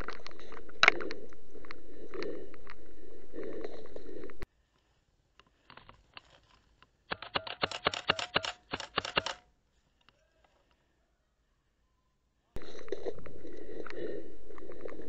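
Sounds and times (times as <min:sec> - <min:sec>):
airsoft gunfire clacks: 0:07.1 - 0:09.4.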